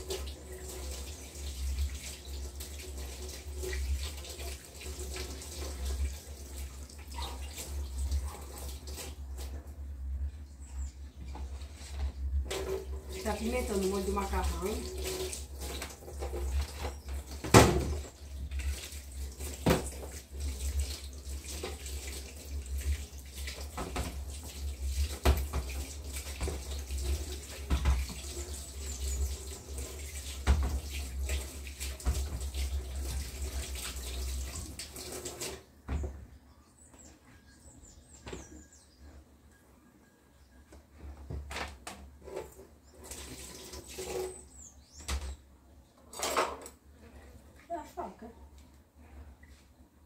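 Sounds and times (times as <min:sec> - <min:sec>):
tap water running into sink: 0:00.0 - 0:09.6, 0:12.4 - 0:35.7, 0:42.4 - 0:44.3.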